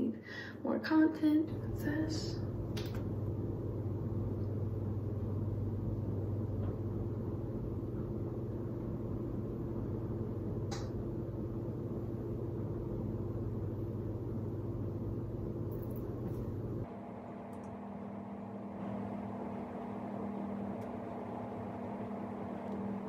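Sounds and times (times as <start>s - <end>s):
low mechanical hum: 0.0s - 23.0s
faint click: 10.7s - 10.9s.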